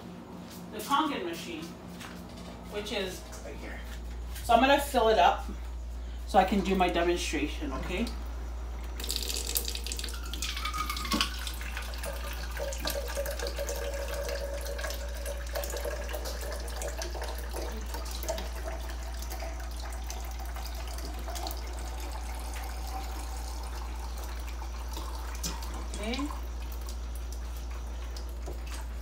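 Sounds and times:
water stream filling plastic cup: 0:08.9 - 0:29.0.

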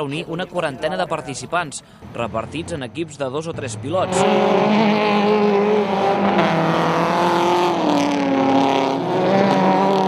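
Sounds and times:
race car engine at high revs: 0:03.6 - 0:10.0.

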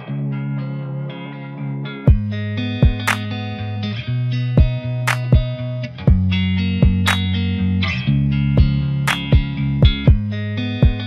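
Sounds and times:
guitar track: 0:00.0 - 0:11.0
beat: 0:02.1 - 0:03.3, 0:04.6 - 0:07.4, 0:08.6 - 0:11.0
bass line: 0:02.1 - 0:11.0.

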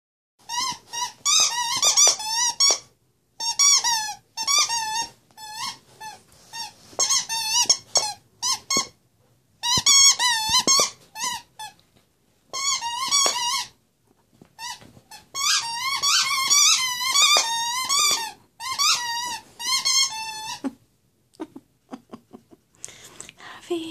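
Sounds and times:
squeaky toy squeaking: 0:00.4 - 0:09.0, 0:09.6 - 0:11.8, 0:12.5 - 0:13.8, 0:14.6 - 0:20.8.

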